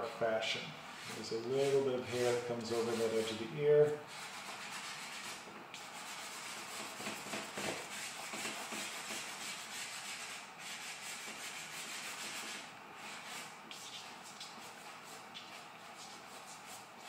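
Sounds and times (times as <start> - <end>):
charcoal scratching on paper: 4.1 - 17.0.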